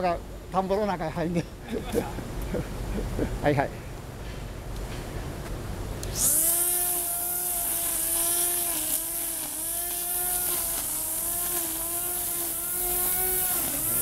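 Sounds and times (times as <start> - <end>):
electric string trimmer cutting grass: 6.0 - 14.0.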